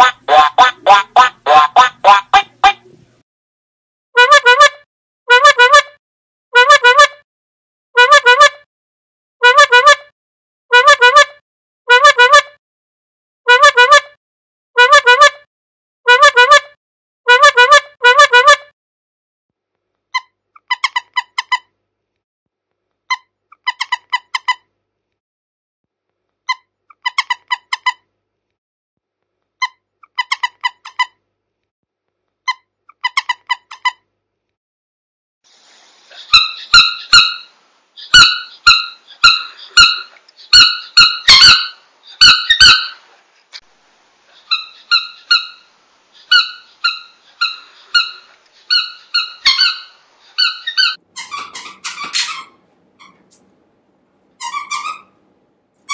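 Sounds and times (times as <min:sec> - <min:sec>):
squeaky toy squeaking: 0:00.0 - 0:03.0, 0:04.2 - 0:06.0, 0:06.6 - 0:07.2, 0:08.0 - 0:08.6, 0:09.4 - 0:10.1, 0:10.7 - 0:12.6, 0:13.5 - 0:14.2, 0:14.8 - 0:15.5, 0:16.1 - 0:18.7, 0:20.1 - 0:21.7, 0:23.1 - 0:24.7, 0:26.4 - 0:28.1, 0:29.6 - 0:31.2, 0:32.4 - 0:34.0, 0:36.2 - 0:43.0, 0:44.4 - 0:53.4, 0:54.4 - 0:55.2.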